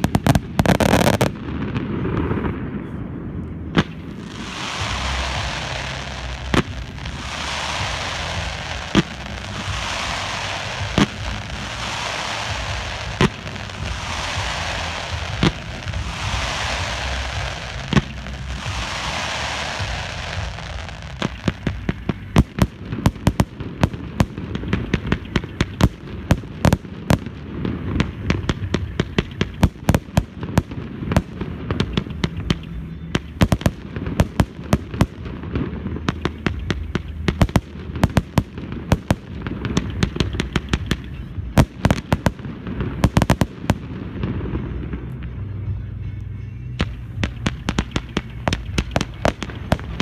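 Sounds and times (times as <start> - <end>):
fireworks bursting bangs: 0.0 - 45.6, 46.8 - 50.0
steady low rumble: 0.0 - 50.0.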